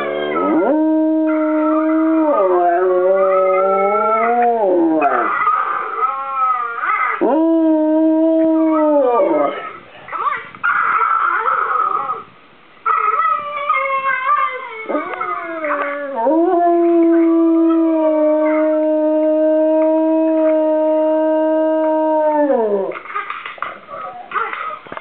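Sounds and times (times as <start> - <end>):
dog howling: 0.0 - 9.8, 12.9 - 23.0.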